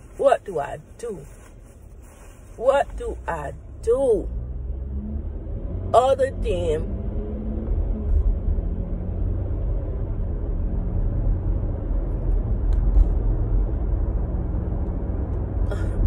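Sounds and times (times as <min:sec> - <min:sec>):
car engine and road noise: 0:00.0 - 0:16.0.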